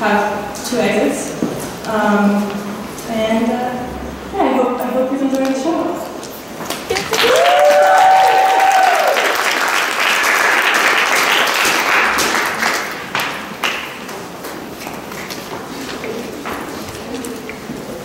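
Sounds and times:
audience applauding: 6.7s - 14.4s
person whooping: 7.0s - 9.4s.

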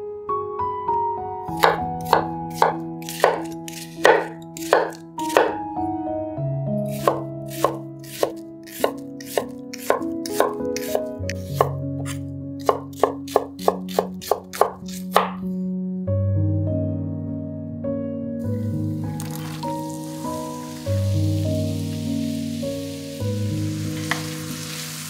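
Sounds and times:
soft background music: 0.0s - 25.0s
knife chopping on wooden board: 1.6s - 5.6s, 6.9s - 15.5s.

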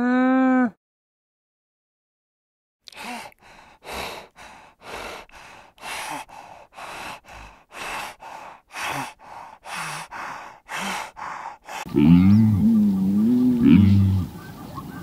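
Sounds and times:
hyena breathing heavily: 2.9s - 12.1s.

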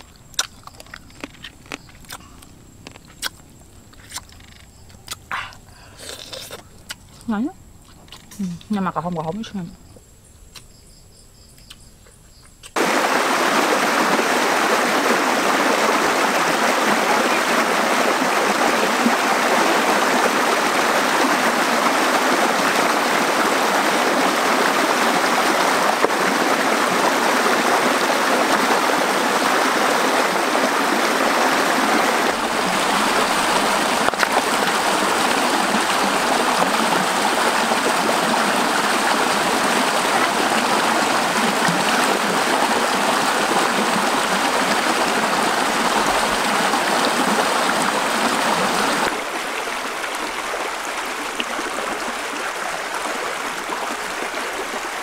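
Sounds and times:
stream water rushing over rocks: 12.8s - 55.0s.

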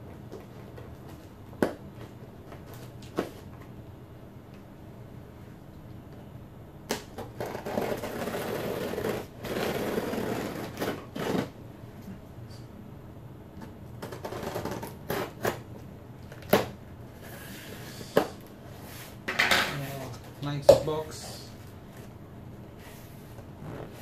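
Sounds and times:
scissors scraping through tape: 14.0s - 15.6s.

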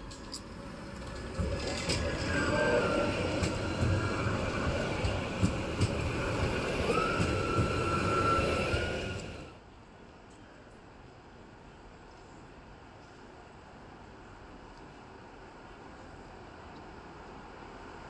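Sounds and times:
tram wheels rumbling on rail: 0.0s - 9.7s.

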